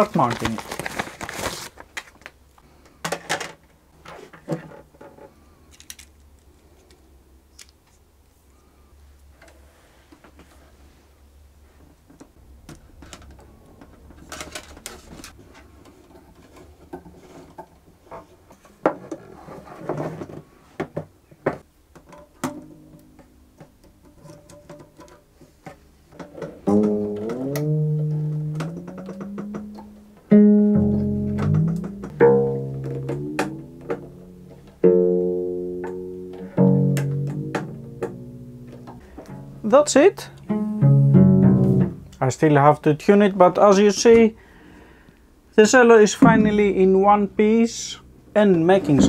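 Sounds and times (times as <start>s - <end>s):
string handling clicks and rattles: 4.3s - 8.0s, 12.0s - 19.2s, 21.9s - 30.0s
cello strings plucked and ringing: 22.4s - 23.6s, 26.6s - 39.6s, 46.2s - 47.4s.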